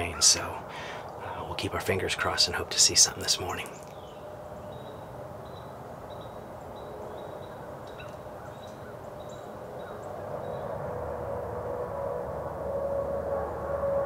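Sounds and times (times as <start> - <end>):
steady low hum: 0.0 - 14.0
bird chirps: 3.3 - 10.8.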